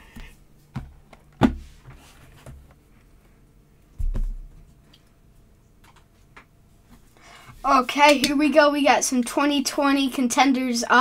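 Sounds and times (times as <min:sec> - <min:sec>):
box thudding down: 0:00.8 - 0:01.6.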